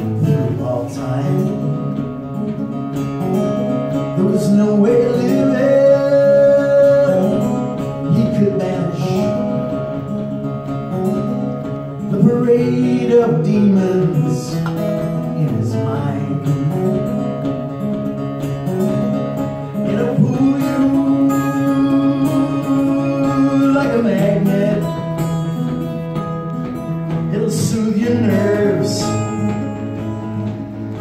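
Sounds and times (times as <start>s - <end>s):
man singing: 0.0s - 2.2s, 4.0s - 10.0s, 12.0s - 17.4s, 19.8s - 26.2s, 27.0s - 30.6s
strummed acoustic guitar: 0.0s - 31.0s.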